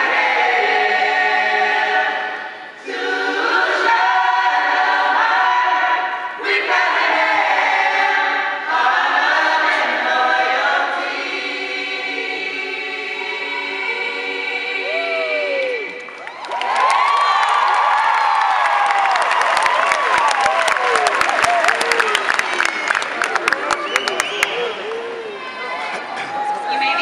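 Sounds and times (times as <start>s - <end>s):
chorus singing in parts: 0.0s - 16.0s.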